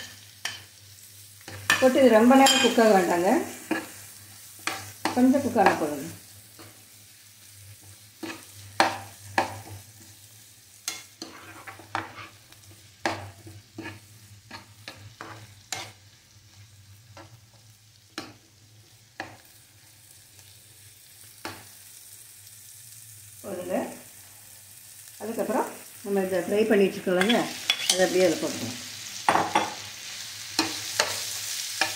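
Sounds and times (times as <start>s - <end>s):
faint sizzle: 0.0s - 31.9s
spoon scraping and tapping pan: 1.5s - 2.8s, 10.8s - 12.4s, 13.0s - 16.0s, 27.2s - 28.1s, 29.3s - 29.8s.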